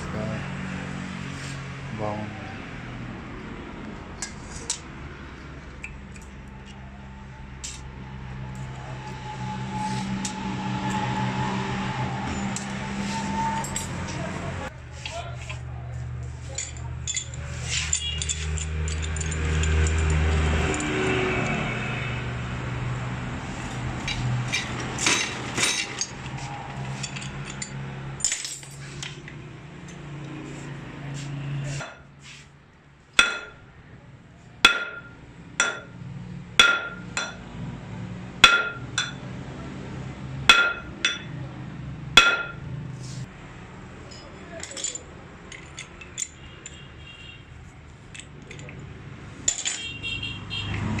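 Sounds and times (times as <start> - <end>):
tool clatter: 16.4 - 21.0, 24.0 - 29.4, 33.2 - 33.6, 34.7 - 35.9, 36.6 - 37.4, 38.4 - 39.2, 40.5 - 41.3, 42.2 - 42.6, 44.1 - 46.9, 49.4 - 50.0.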